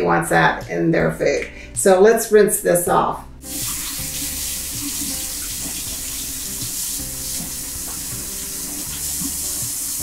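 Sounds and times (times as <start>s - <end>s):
faucet water running into sink: 3.4s - 10.0s.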